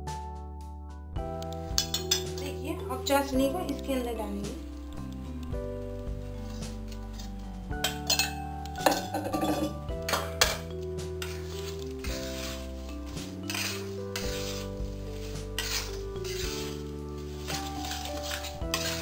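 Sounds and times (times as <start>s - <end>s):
background music: 0.0s - 19.0s
metal spatula scraping sticky mixture: 6.1s - 19.0s.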